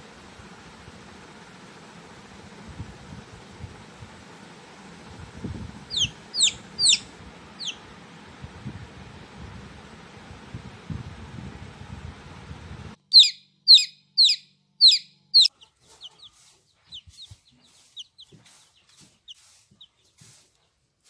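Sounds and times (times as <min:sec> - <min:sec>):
low steady hiss: 0:00.0 - 0:13.0
chick peeping: 0:05.9 - 0:07.8, 0:13.1 - 0:20.7.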